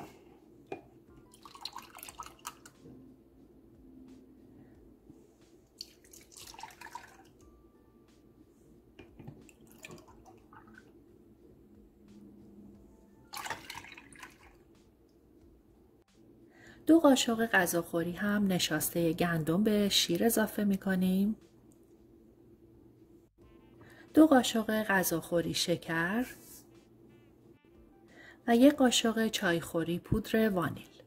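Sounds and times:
dripping: 1.3s - 2.7s, 5.8s - 7.4s, 9.5s - 10.9s, 13.3s - 14.6s
milk pouring into a saucepan: 1.3s - 2.7s, 5.8s - 7.4s, 13.4s - 14.6s.

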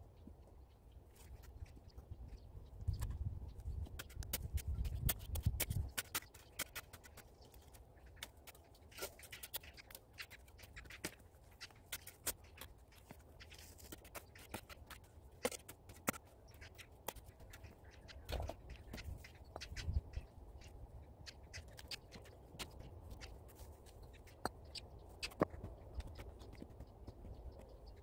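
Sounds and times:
shovel digging into stony soil: 4.0s - 7.3s.

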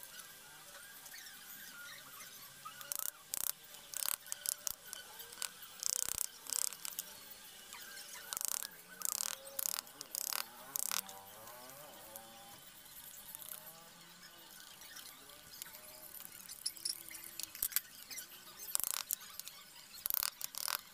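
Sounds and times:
chisel cutting wood: 2.8s - 7.2s, 8.1s - 12.4s, 13.2s - 13.7s, 14.9s - 20.9s.

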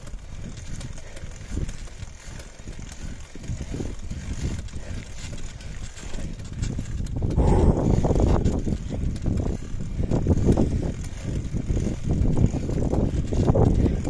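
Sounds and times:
bike tyres rumbling on gravel: 0.0s - 14.0s
stones and bike rattling: 0.0s - 14.0s
wind on microphone: 0.0s - 14.0s.

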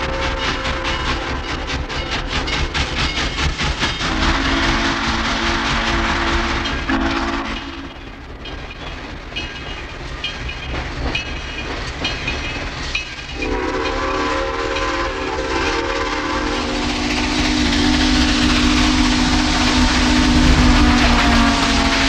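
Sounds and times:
steam whistle long blast: 4.1s - 7.9s, 13.4s - 22.0s
steam locomotive bell ringing: 6.5s - 22.0s.

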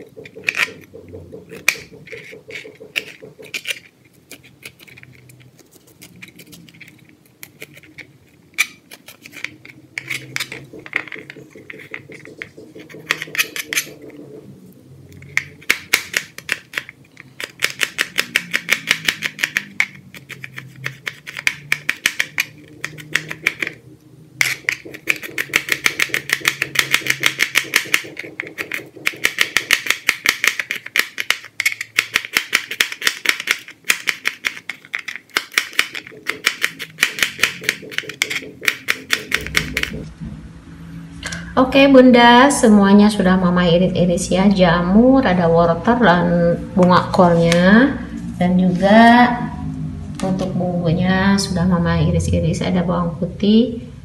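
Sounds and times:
knife chopping on plastic board: 0.0s - 4.5s, 8.6s - 14.4s, 15.2s - 23.8s, 24.4s - 40.1s.

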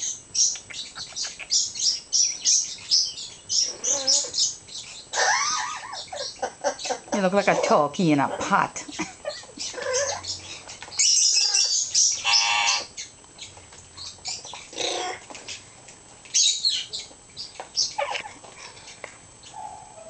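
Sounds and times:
parrot buzzy calls: 0.0s - 15.3s, 16.3s - 20.0s.

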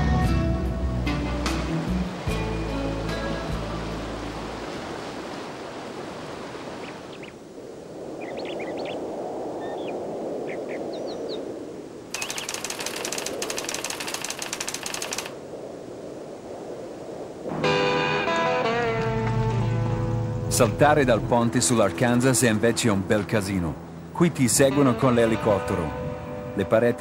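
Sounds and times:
rushing outdoor ambience: 0.6s - 27.0s
typewriter clattering effect: 12.1s - 15.4s
bird chirps: 12.2s - 12.9s.

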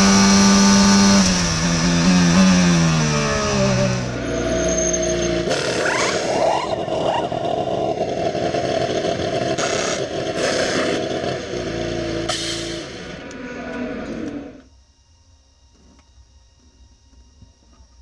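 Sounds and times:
race car engine running: 0.0s - 14.6s
pneumatic wheel gun bursts: 12.2s - 13.1s.

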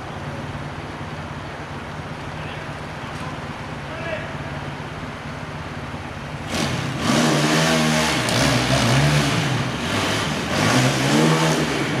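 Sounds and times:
motorcycle engine revving: 6.4s - 12.0s.

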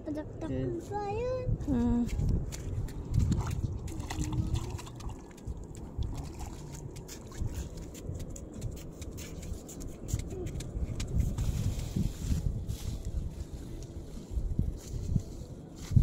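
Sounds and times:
wind buffeting microphone: 0.0s - 16.0s
faint water sounds: 0.8s - 9.6s
small clicks from wet ground: 2.0s - 11.3s.

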